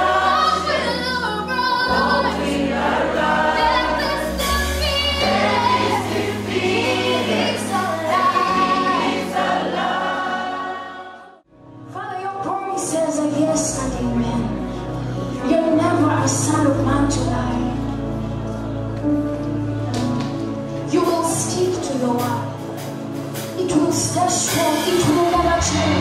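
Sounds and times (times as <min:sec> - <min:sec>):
choir singing gospel: 0:00.0 - 0:11.5, 0:15.2 - 0:21.5, 0:22.2 - 0:26.0
low accompaniment notes: 0:11.7 - 0:26.0.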